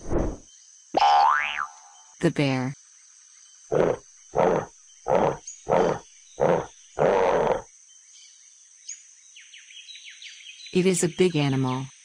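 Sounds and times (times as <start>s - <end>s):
bear growling: 3.7s - 7.7s.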